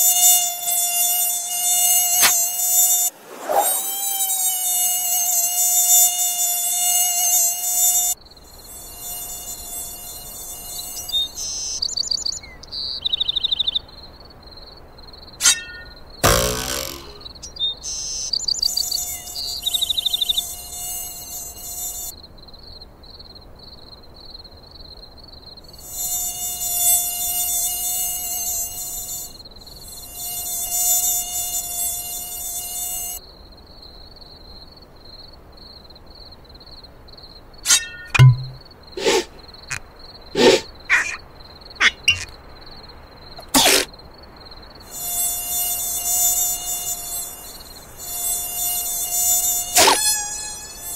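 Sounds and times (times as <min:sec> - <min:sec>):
cartoon mosquito buzzing: 0:00.0 - 0:11.8, 0:15.4 - 0:22.1, 0:25.8 - 0:33.2, 0:37.7 - 0:39.4, 0:40.4 - 0:41.2, 0:41.8 - 0:42.3, 0:43.4 - 0:43.9, 0:44.9 - 0:50.9
short sharp sounds: 0:37.7 - 0:39.4.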